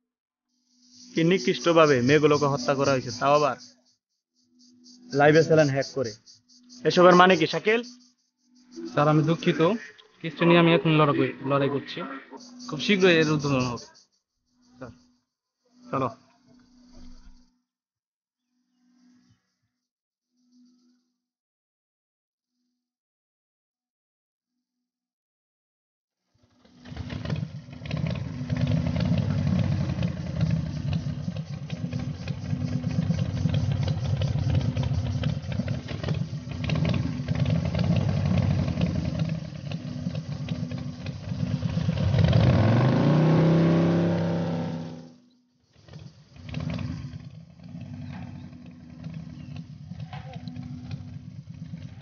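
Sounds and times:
motorcycle engine idling and revving: 0.7s - 4.0s, 4.6s - 10.0s, 12.3s - 14.1s, 26.4s - 52.0s
faint motorcycle engine: 0.9s - 3.9s, 4.7s - 15.1s, 26.4s - 52.0s.

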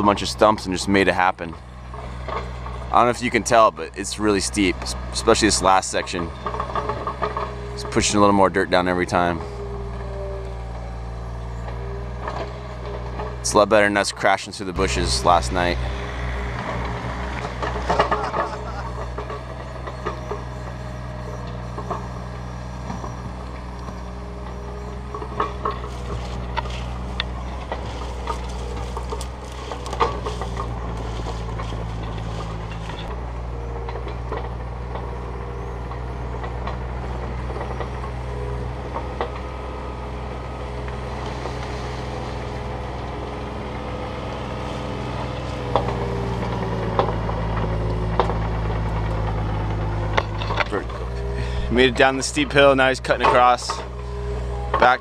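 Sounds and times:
excavator diesel engine running: 0.0s - 55.0s
clanks and knocks: 15.1s - 20.5s, 22.9s - 33.1s, 45.3s - 51.6s.

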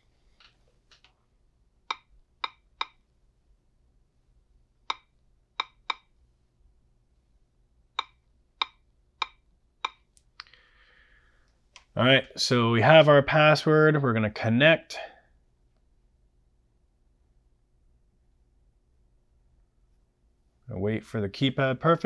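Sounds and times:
touchscreen key-press clicks: 4.9s - 6.1s.

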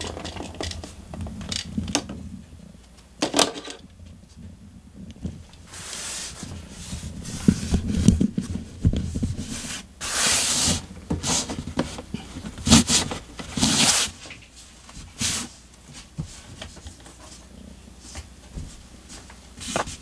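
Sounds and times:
cat scraping and rubbing: 5.6s - 11.6s, 12.6s - 14.5s.

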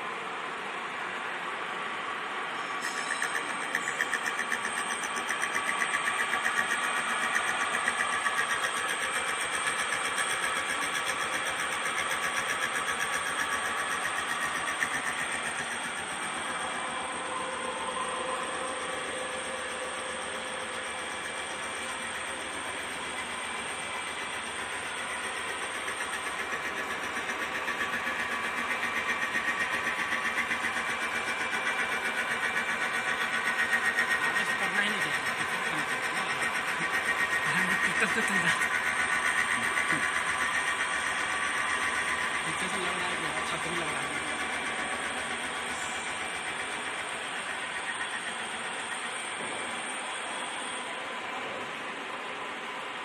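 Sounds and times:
milling machine drone: 2.0s - 53.0s
steady high tones: 2.5s - 51.2s.

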